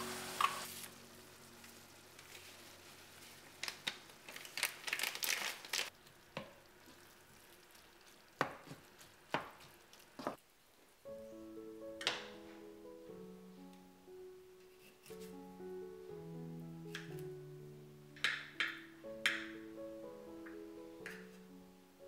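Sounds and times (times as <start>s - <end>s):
meat sizzling in a skillet: 0.0s - 4.9s
wooden spatula scraping: 0.4s - 3.8s, 14.6s - 15.5s.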